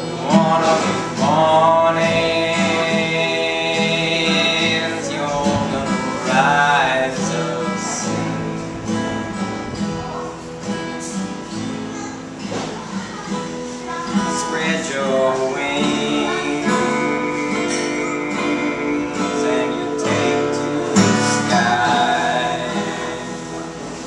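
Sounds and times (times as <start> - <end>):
acoustic guitar strumming and picking: 0.0 - 24.0.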